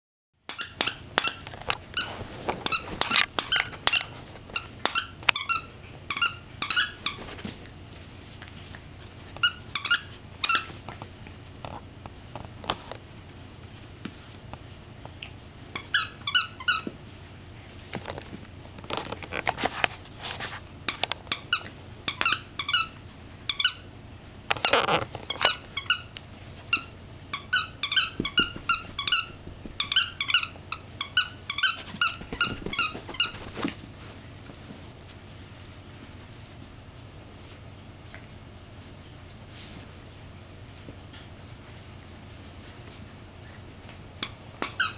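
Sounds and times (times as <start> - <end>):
toy squeaker squeaking: 0.5 - 1.4, 2.7 - 7.2, 26.8 - 33.3.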